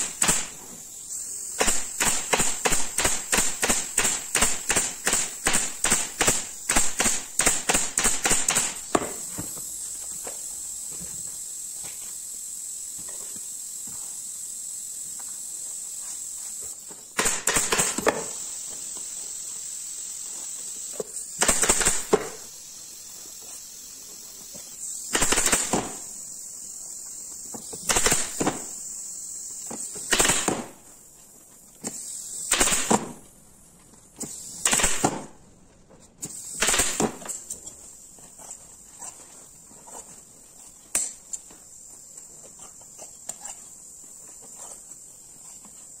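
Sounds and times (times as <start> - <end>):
pneumatic staple gun firing: 0.0 - 0.8, 1.5 - 9.6, 17.1 - 19.0, 20.9 - 22.6, 25.0 - 26.2, 27.6 - 28.9, 29.6 - 30.9, 31.8 - 33.2, 34.2 - 35.4, 36.2 - 37.7
steady high hiss: 0.0 - 46.0.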